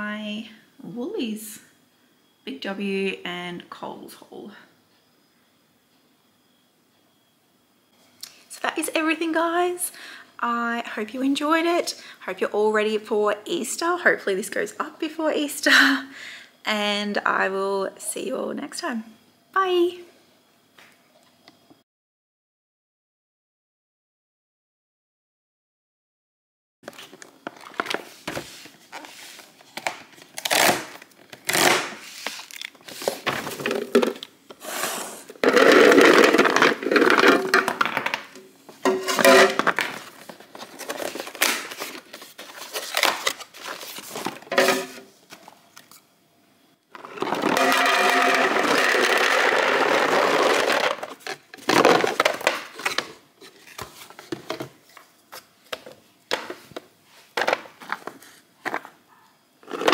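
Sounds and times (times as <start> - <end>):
tablets clattering into plastic container: 32.3 - 34.3, 35.4 - 45.0, 47.0 - 53.2, 59.6 - 59.9.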